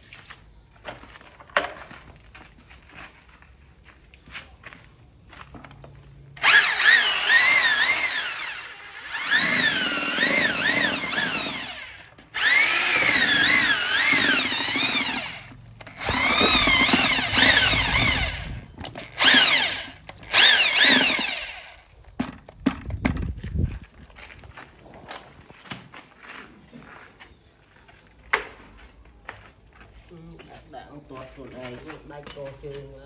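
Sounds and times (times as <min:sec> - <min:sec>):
electric drill motor whine: 0:06.4 - 0:21.8.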